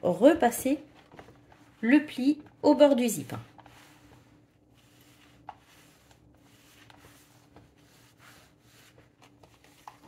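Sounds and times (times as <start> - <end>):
iron rubbing on fabric: 3.2 - 9.2.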